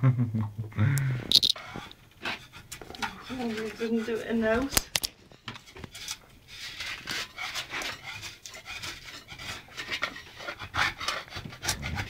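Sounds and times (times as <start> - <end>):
scraper rasping wallpaper: 1.6 - 4.7, 5.9 - 12.0.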